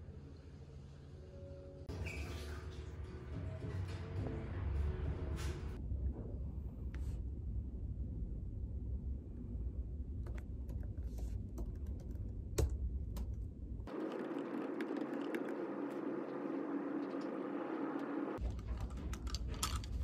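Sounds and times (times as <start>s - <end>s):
low room rumble: 2.8s - 20.0s
laptop keyboard typing: 10.7s - 13.3s, 13.9s - 16.0s.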